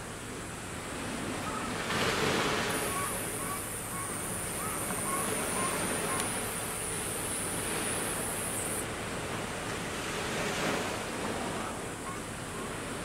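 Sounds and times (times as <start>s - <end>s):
sea waves washing on shore: 0.0s - 13.0s
thin high hiss: 2.7s - 8.8s.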